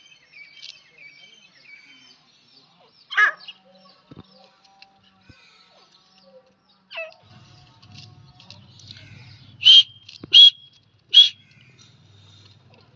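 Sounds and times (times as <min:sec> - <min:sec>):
bird calling sharp notes: 0:08.8 - 0:12.3.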